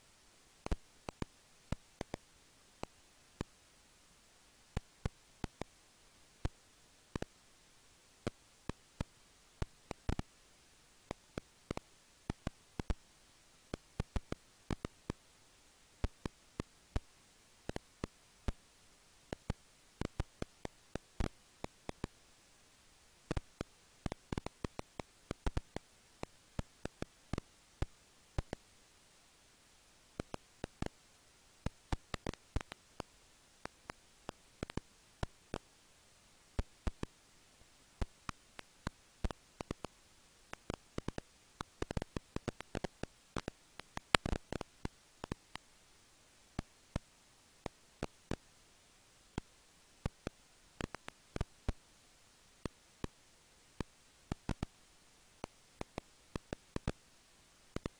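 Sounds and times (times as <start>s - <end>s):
faint steady hiss: 0.0s - 57.9s
bats clicking: 0.6s - 3.6s, 4.7s - 5.8s, 6.4s - 7.4s, 8.2s - 10.3s, 11.0s - 15.2s, 16.0s - 22.2s, 23.2s - 28.7s, 30.1s - 31.0s, 31.6s - 35.7s, 36.6s - 37.2s, 38.0s - 45.7s, 46.6s - 48.5s, 49.3s - 51.8s, 53.8s - 54.8s, 55.4s - 57.0s.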